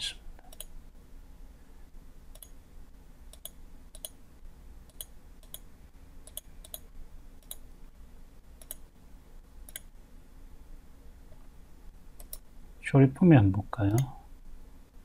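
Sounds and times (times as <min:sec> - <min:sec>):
faint low hum: 0:00.0 - 0:15.0
computer mouse button clicking: 0:02.3 - 0:02.6, 0:09.7 - 0:09.9.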